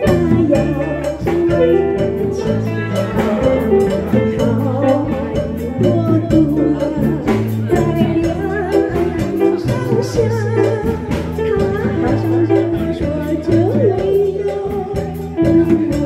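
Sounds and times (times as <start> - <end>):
live band playing: 0.0 - 16.0
woman singing: 0.0 - 16.0.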